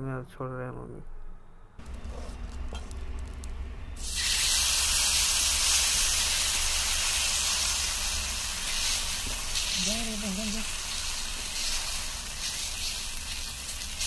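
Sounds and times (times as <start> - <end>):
batter sizzling on hot pan: 1.9 - 14.0.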